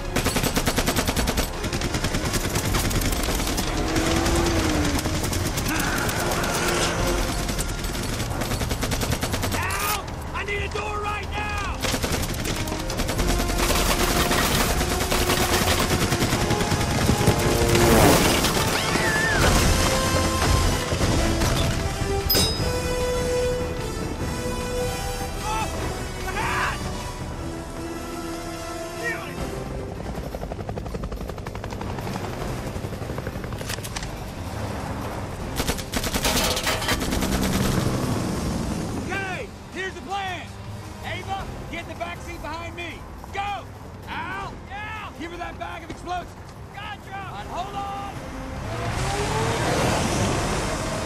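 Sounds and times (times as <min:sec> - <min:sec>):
rapid automatic gunfire: 0:00.0 - 0:09.9, 0:11.8 - 0:20.8, 0:35.6 - 0:38.1
helicopter rotor drone: 0:00.0 - 0:49.6
film score music: 0:00.0 - 0:51.0.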